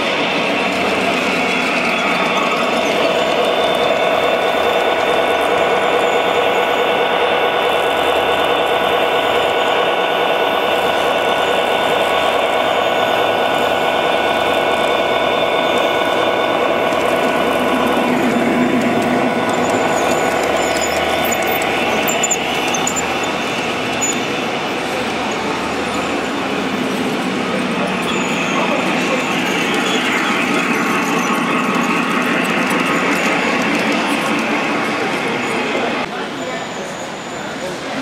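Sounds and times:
model locomotive whine: 0.0s - 38.0s.

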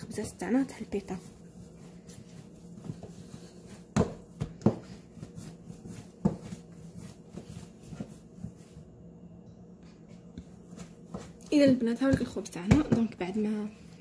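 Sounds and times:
faint steady hum: 0.0s - 14.0s
dough thumping on countertop: 2.1s - 8.8s, 9.8s - 13.5s.

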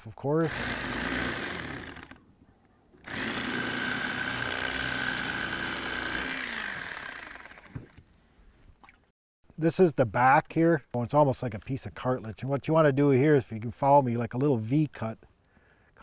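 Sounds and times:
electric knife buzzing: 0.4s - 2.2s, 3.0s - 7.9s.

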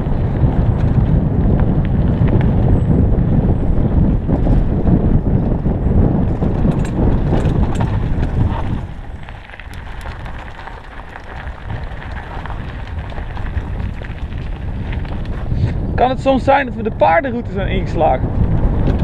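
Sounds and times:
tyres rumbling over dirt: 0.0s - 19.0s
wind on microphone: 0.0s - 19.0s
tyres crunching on gravel: 6.3s - 19.0s.

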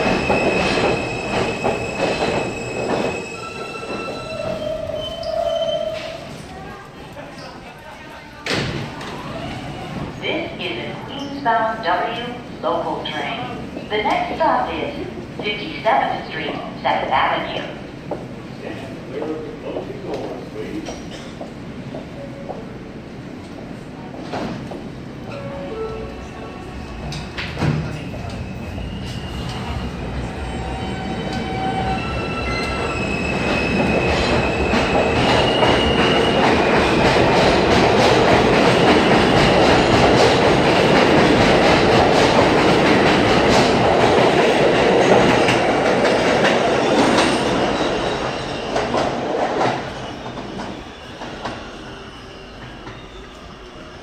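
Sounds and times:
train rumble: 8.8s - 51.7s.

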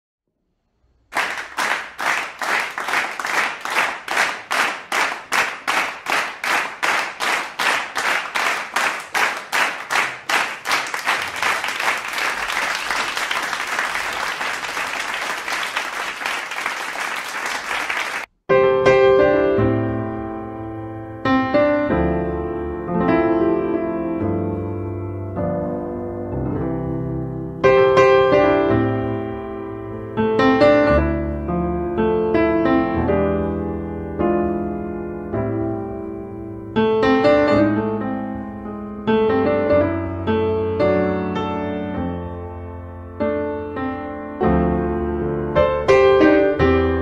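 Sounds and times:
crowd clapping in unison: 1.1s - 18.3s
piano chords ringing: 18.5s - 47.0s.

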